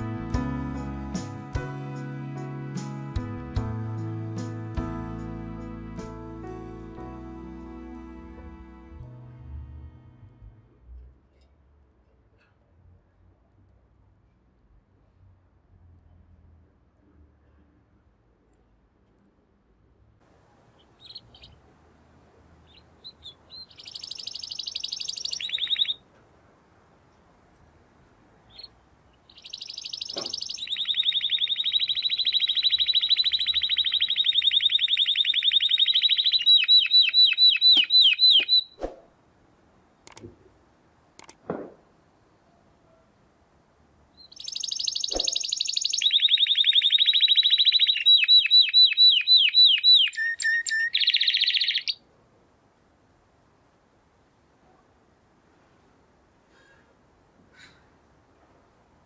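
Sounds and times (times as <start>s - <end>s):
canary singing rolling trills: 20.6s - 26.0s, 28.4s - 38.8s, 44.1s - 52.0s
sharp clicks: 40.0s - 40.4s, 41.2s - 41.4s.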